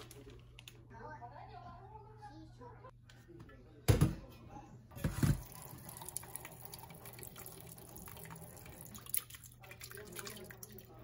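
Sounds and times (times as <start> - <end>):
tap water running into metal bowl: 5.0 - 11.0
water dripping: 5.4 - 11.0.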